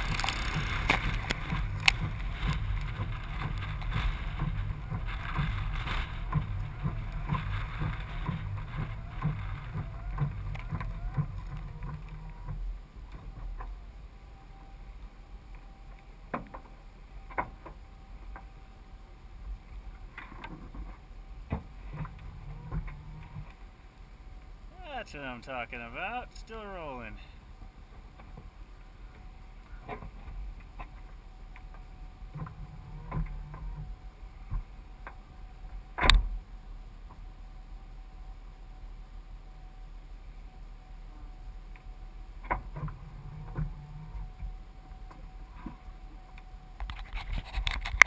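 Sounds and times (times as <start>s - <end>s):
faint ticks and clicks: 0.0s - 13.9s
vehicle driving on wet road: 0.0s - 17.5s
low steady hum: 0.0s - 48.0s.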